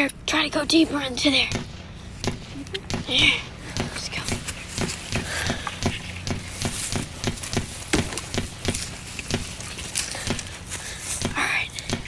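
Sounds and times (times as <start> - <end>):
footsteps crunching on pine straw: 4.0 - 11.8.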